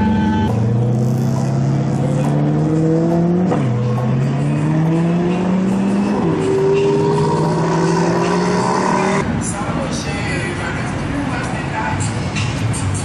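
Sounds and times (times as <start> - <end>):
car engine accelerating: 0.0 - 9.2.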